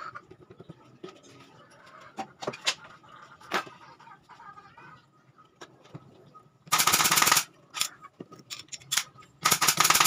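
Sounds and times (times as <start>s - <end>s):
nail gun firing: 6.7s - 7.5s, 9.4s - 10.0s.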